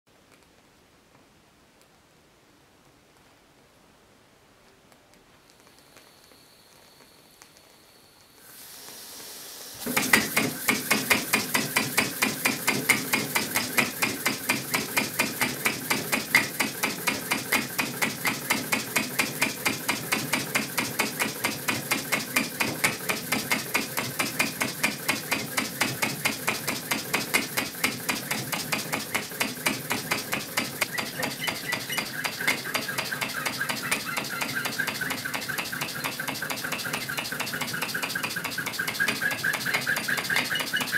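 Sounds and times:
hiss of steam: 5.7 - 40.9
fast even clicking of glass parts: 9.9 - 40.9.

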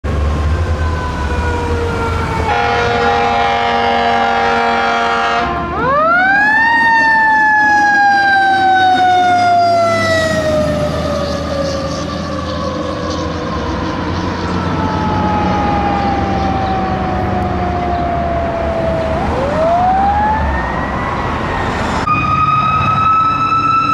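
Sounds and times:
fire engine siren: 0.0 - 23.9
air horn blast: 2.4 - 5.7.

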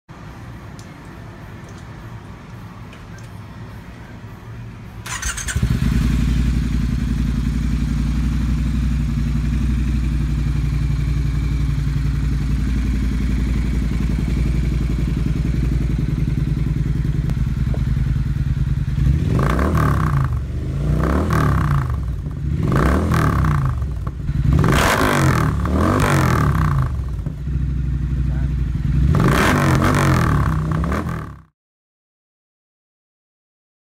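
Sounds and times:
motorcycle engine idling: 5.0 - 29.2
engine revving: 5.0 - 31.5.

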